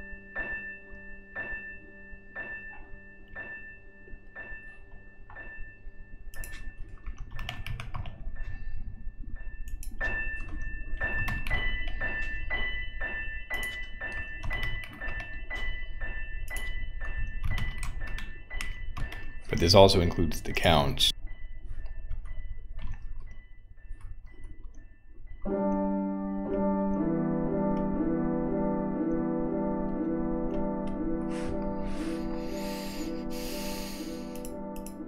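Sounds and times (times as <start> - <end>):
soft background music: 0.0 - 35.0
keyboard typing: 6.3 - 8.6, 9.6 - 12.2, 13.5 - 21.0, 21.7 - 35.0.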